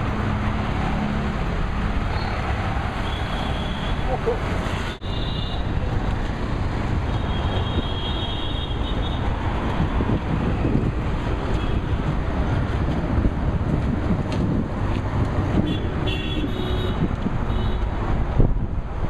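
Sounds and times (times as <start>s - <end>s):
road traffic noise: 0.0s - 19.0s
wind rumbling on microphone: 9.0s - 19.0s.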